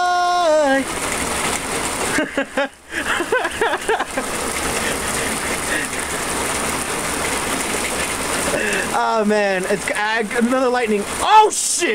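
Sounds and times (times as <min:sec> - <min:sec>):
heavy rain on pavement: 0:00.0 - 0:11.9.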